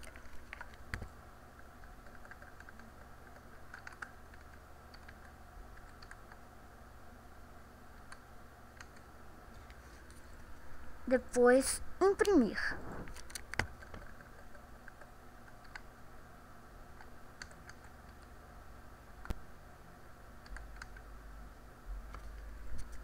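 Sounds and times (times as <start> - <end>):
low steady hum: 0.0 - 23.0
computer keyboard keystrokes: 1.8 - 6.4, 8.8 - 9.1, 13.2 - 15.9, 17.0 - 18.3, 20.4 - 21.1.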